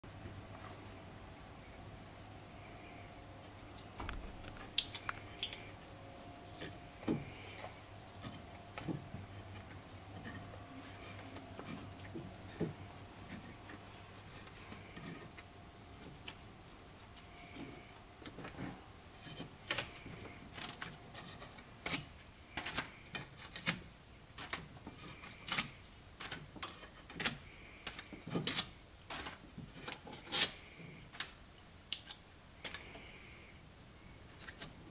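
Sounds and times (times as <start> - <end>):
hand tool scraping wood: 6.5 - 16.4.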